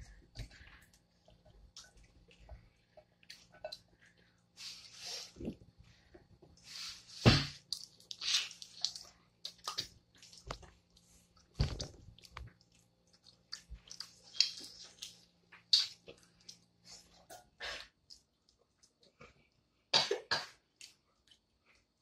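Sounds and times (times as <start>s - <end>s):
chewing: 7.7s - 19.5s.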